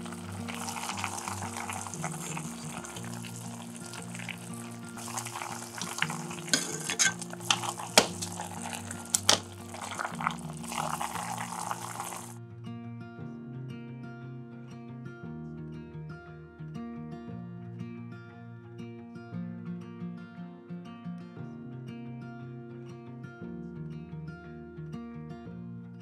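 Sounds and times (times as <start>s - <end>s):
broth simmering and bubbling: 0.0s - 12.4s
soft background music: 0.0s - 20.6s
metal ladle clinking against pan: 5.1s - 9.4s.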